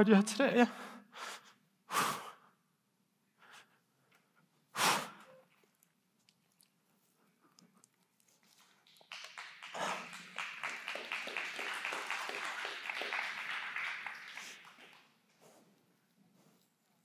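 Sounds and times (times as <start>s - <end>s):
crowd applauding: 8.7s - 15.2s.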